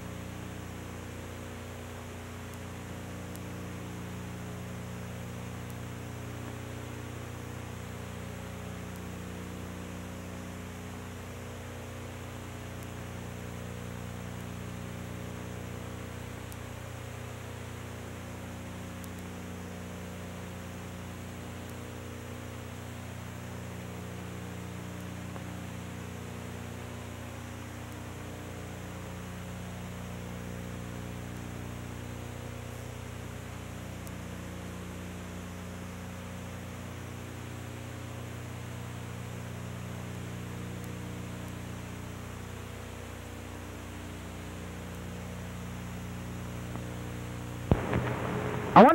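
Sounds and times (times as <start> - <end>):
electrical hum: 45.9 - 48.9.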